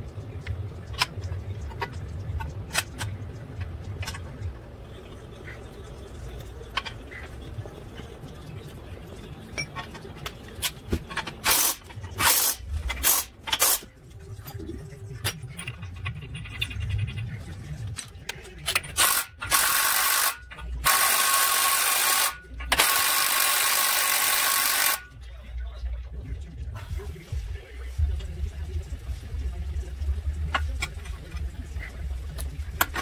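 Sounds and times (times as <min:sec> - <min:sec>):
impact wrench running: 0:19.0 - 0:25.0.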